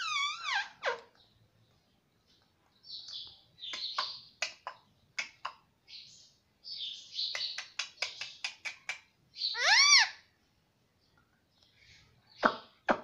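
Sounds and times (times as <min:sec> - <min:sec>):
parakeet chattering: 0:07.2 - 0:10.2.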